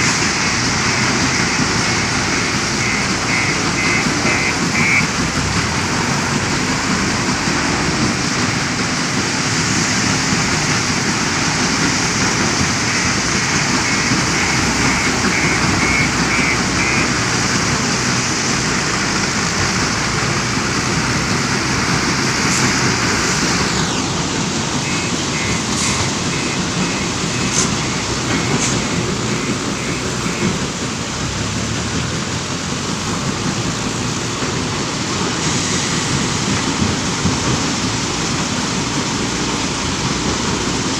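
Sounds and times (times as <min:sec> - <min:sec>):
diesel engine working: 0:00.0 - 0:40.9
high beeping alarm: 0:00.8 - 0:05.1, 0:12.8 - 0:17.2, 0:24.8 - 0:28.7.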